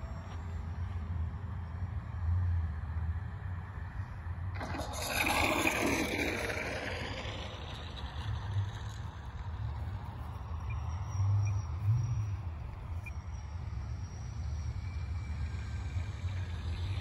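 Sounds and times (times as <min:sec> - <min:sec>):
model plane propeller whine: 0:04.2 - 0:17.0.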